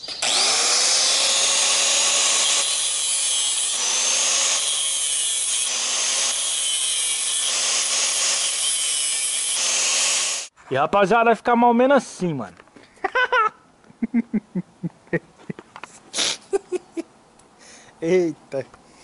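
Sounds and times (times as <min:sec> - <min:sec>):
angle grinder cutting steel mesh: 0:00.0 - 0:10.5.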